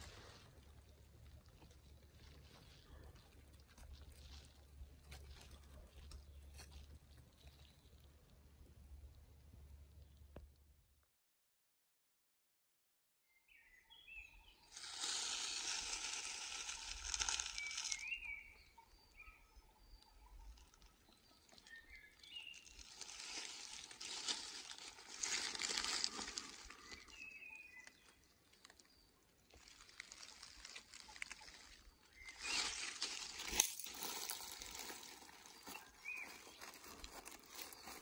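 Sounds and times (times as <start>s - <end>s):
dry leaves rustling and crunching: 1.6s - 7.5s, 14.7s - 18.4s, 21.5s - 28.8s, 29.5s - 38.0s
birds chirping: 13.9s - 29.4s, 30.2s - 38.0s.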